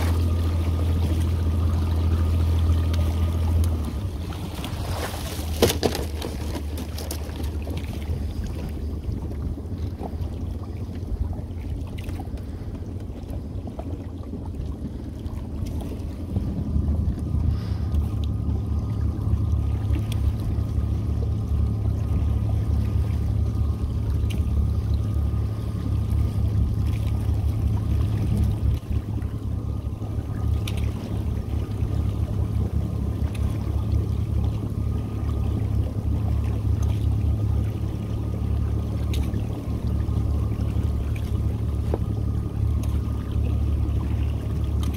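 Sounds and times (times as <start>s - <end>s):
small boat motor running: 0.0s - 44.9s
water sloshing: 0.0s - 44.9s
net splashing in water: 4.3s - 8.0s.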